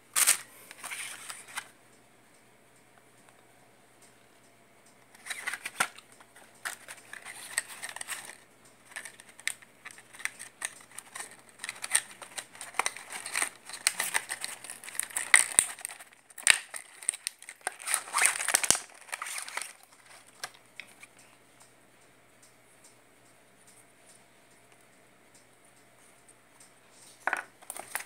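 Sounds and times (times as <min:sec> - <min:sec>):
plastic packaging crinkling: 0:00.1 - 0:01.7, 0:05.1 - 0:21.2, 0:27.2 - 0:28.0.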